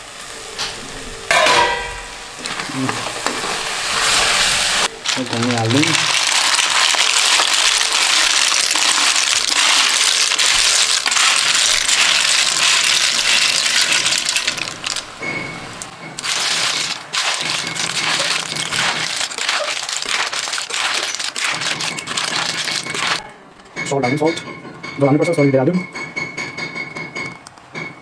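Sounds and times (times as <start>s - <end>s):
snails sizzling in a wok: 1.9s - 15.2s, 15.8s - 23.2s
shells clattering in a pan: 5.0s - 15.4s, 16.2s - 23.2s.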